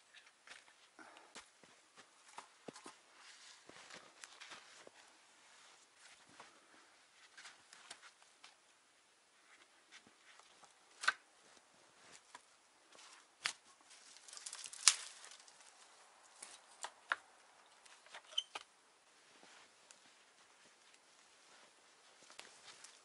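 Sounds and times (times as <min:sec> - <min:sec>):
rustling: 0:01.7 - 0:08.7, 0:09.3 - 0:23.0
wood knocking and cracking: 0:13.4 - 0:15.6.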